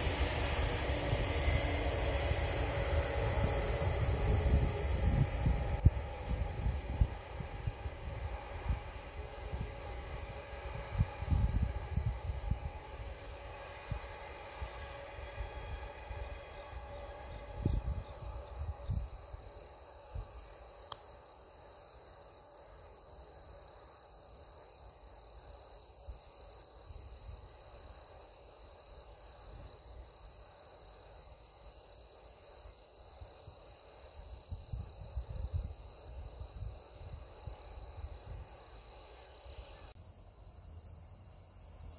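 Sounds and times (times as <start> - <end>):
wind buffeting microphone: 0.0 - 14.2, 17.3 - 19.4
faint hum of a train: 0.0 - 41.9
insects chirping: 0.0 - 41.9.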